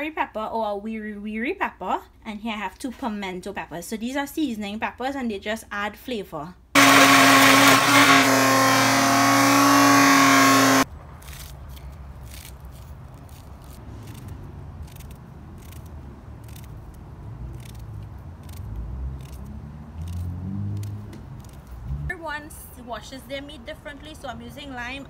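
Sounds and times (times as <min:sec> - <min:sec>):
blender whining at high speed: 0:06.8 - 0:10.9.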